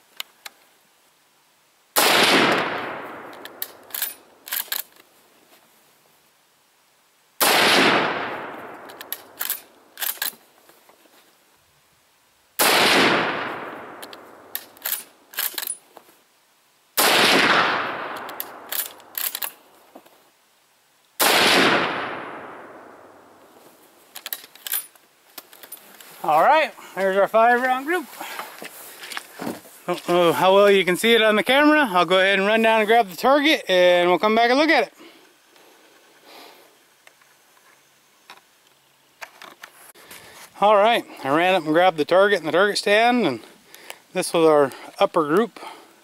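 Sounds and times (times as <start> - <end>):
rifle shots: 2.0 - 4.2, 7.4 - 10.2, 12.6 - 15.1, 17.0 - 19.1, 21.2 - 23.2
rifle bolt clacking: 2.5 - 5.0, 8.7 - 10.4, 18.1 - 19.6.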